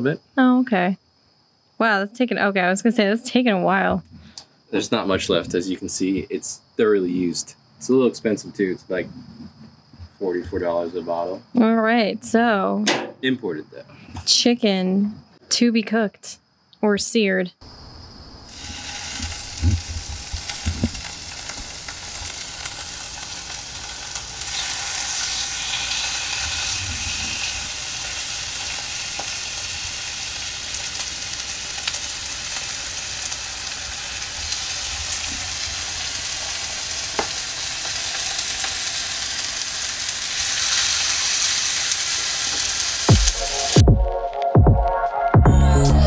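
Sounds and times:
chicken sizzling in oil: 18.4s - 43.8s.

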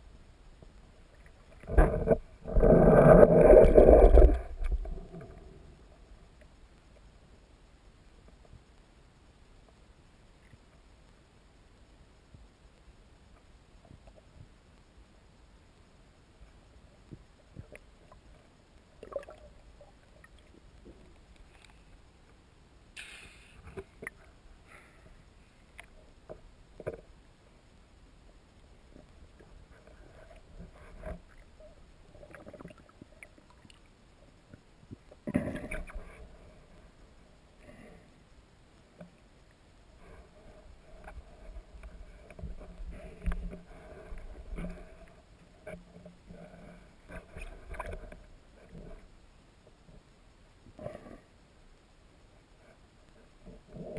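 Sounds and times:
muffled underwater rumble: 0.0s - 53.9s
underwater knocks and bumps: 1.5s - 5.4s.

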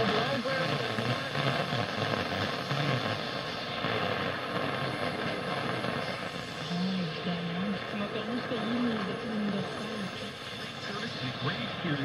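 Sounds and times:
faint radio voice: 0.0s - 1.9s, 4.6s - 12.0s
radio static hiss and crackle: 0.0s - 12.0s.

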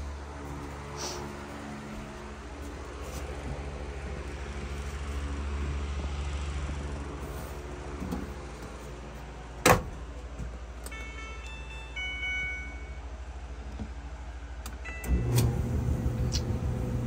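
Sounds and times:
dryer door banging shut: 9.6s - 9.9s.

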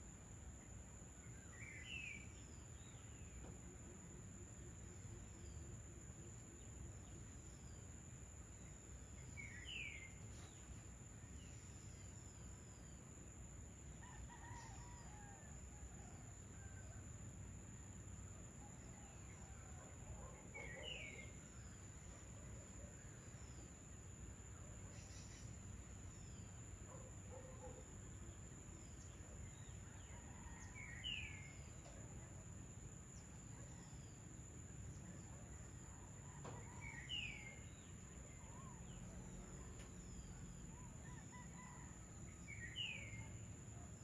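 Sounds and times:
distant rooster crowing: 14.0s - 16.8s, 30.0s - 31.2s, 41.0s - 43.3s.

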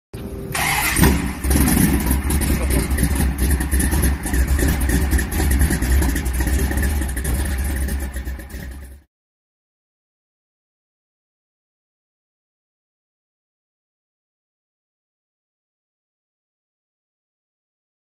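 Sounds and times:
car engine revving: 0.2s - 9.0s.

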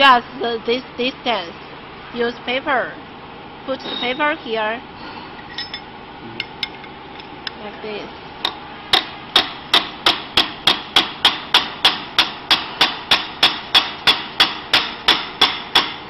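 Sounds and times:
hammer tapping on steel: 8.4s - 16.0s.

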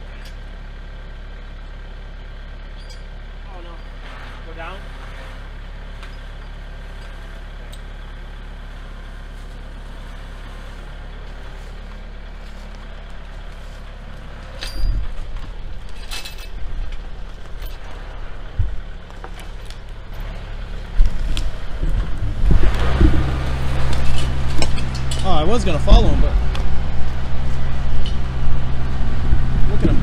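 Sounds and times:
tractor diesel engine running: 0.0s - 30.0s
sharp clanks: 14.4s - 20.4s, 22.5s - 25.4s.

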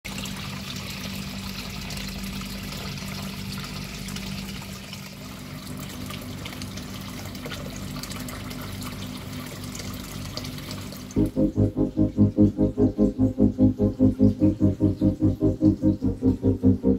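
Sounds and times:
low steady hum: 10.9s - 16.9s.

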